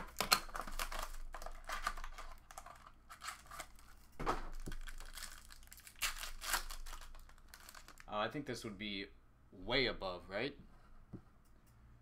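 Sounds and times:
plastic wrapping crinkling and tearing: 0.0 - 8.1.

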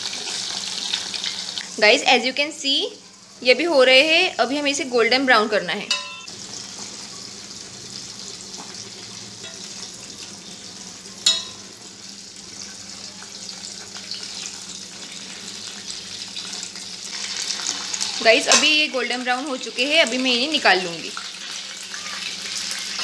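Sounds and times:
food sizzling in hot oil: 0.0 - 23.0
metal spoon clinking on pot: 5.9 - 6.3, 11.2 - 11.6.

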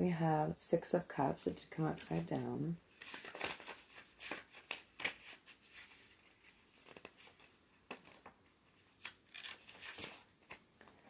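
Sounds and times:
cards and paper rustling: 2.9 - 11.0.

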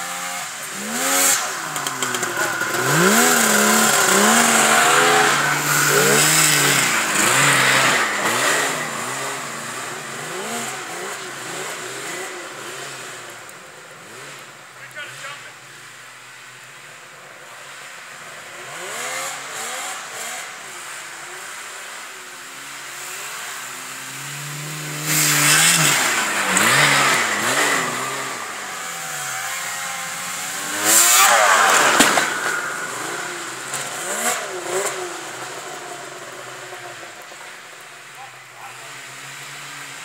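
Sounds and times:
snowmobile engine revving: 0.0 - 16.6, 17.2 - 40.0.

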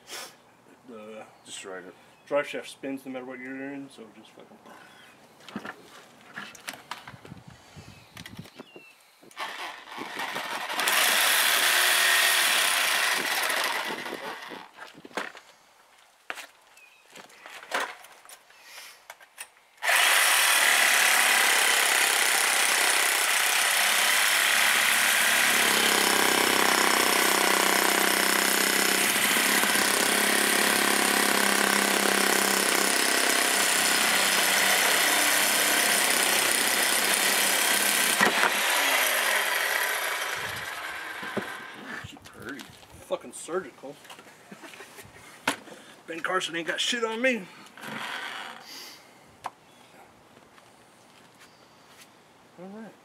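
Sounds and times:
reciprocating saw cutting metal: 9.4 - 14.6, 19.8 - 41.8.

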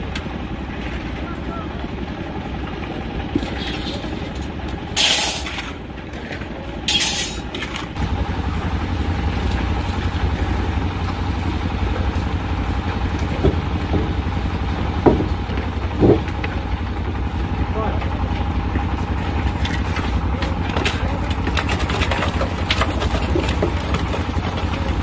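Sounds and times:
concrete mixer engine running: 0.0 - 25.0
shovels scraping on gravel: 3.4 - 8.0.

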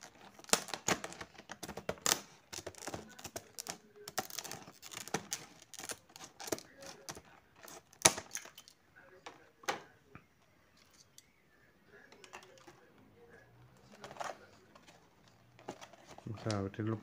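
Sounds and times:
plastic packaging crackling: 0.0 - 8.8.

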